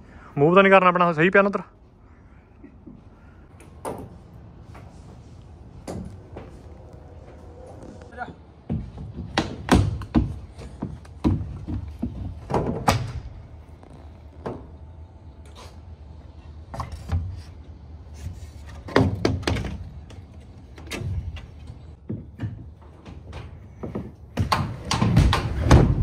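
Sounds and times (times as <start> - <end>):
steady low rumble: 4.2 - 8.7.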